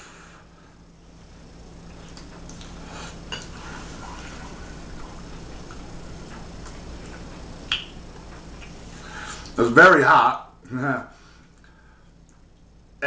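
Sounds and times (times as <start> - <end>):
quiet chewing: 1.8 - 9.6
wet mouth clicks: 7.7 - 8.0.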